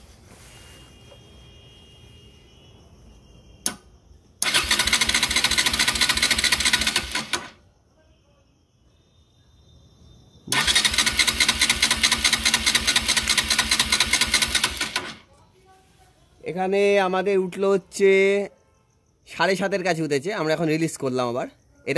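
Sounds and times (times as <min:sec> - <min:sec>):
sharp click: 0:03.6 - 0:03.9
electric starter cranking engine: 0:04.4 - 0:07.6, 0:10.5 - 0:15.2.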